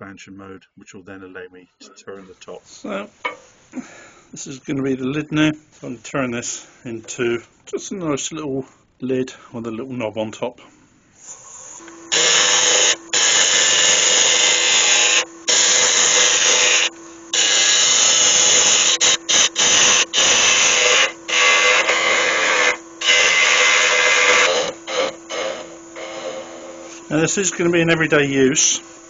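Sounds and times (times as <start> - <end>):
lathe humming: 11.2 - 29.0
lathe tool cutting wood: 11.3 - 29.0.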